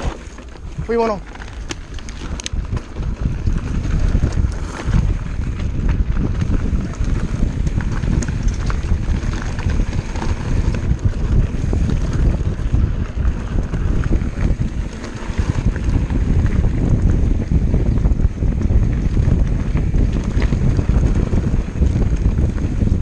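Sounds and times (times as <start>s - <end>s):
bike rattling clicks: 0.0s - 23.0s
tyres rolling on rocky trail: 0.0s - 23.0s
wind over microphone: 0.0s - 23.0s.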